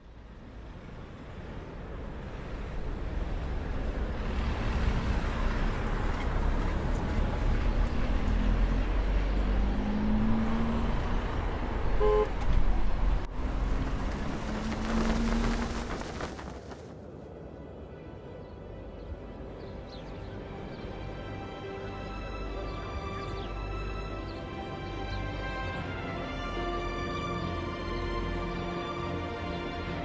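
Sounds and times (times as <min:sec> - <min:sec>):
street traffic passing: 0:00.0 - 0:30.0
car horn toot: 0:12.0 - 0:12.4.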